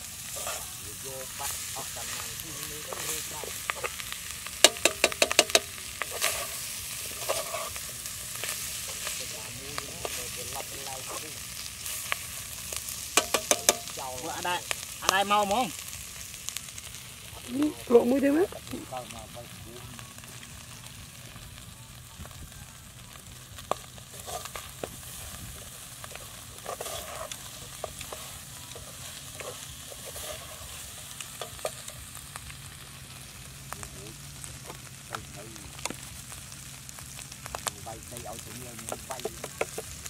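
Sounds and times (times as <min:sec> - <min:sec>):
food sizzling in a pot: 0:00.0 - 0:40.0
spoon scraping a pot: 0:04.7 - 0:07.8, 0:26.6 - 0:30.7.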